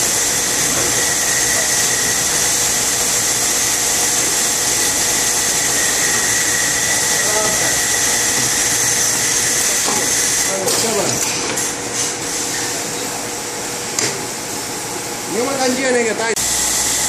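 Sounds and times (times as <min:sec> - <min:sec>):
packaging machinery hiss: 0:00.0 - 0:12.6
machinery whine: 0:00.0 - 0:17.0.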